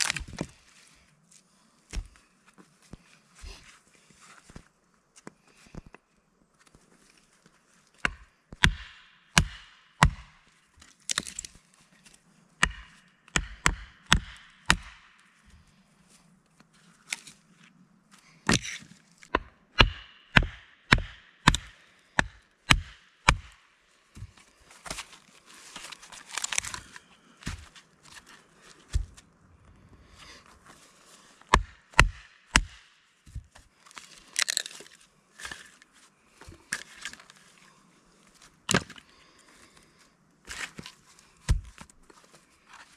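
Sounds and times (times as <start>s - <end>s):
wood cracking and splitting: 0.0s - 0.5s, 10.8s - 11.6s, 25.8s - 27.7s, 33.9s - 35.6s.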